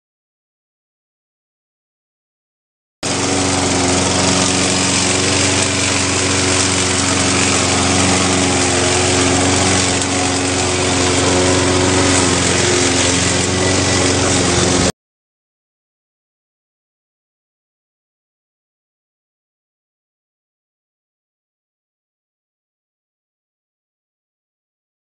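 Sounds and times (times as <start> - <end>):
lawn mower running: 3.0 - 14.9.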